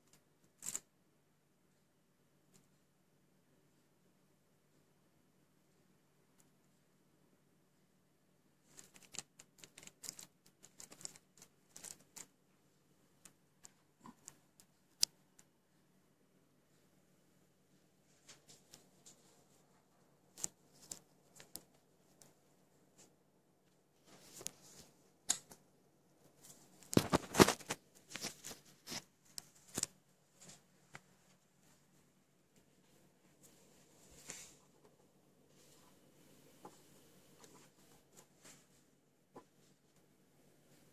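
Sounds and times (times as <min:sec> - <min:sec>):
faint steady hum: 0:00.0 - 0:40.9
faint irregular clicking: 0:08.6 - 0:15.6, 0:18.2 - 0:31.4.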